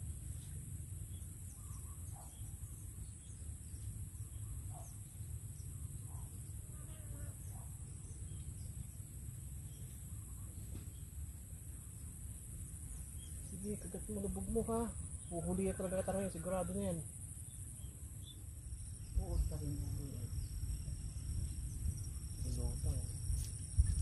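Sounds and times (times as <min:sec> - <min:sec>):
insects chorus: 0:00.0 - 0:24.0
faint bird chirps: 0:00.3 - 0:09.0, 0:09.6 - 0:12.1.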